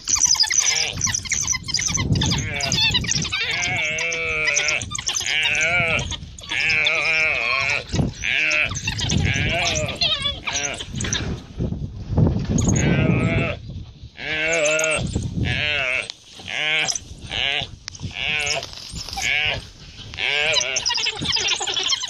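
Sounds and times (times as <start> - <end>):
antelope bleating in distress: 0.5 - 1.1, 2.0 - 11.0, 12.6 - 13.6, 14.2 - 22.0.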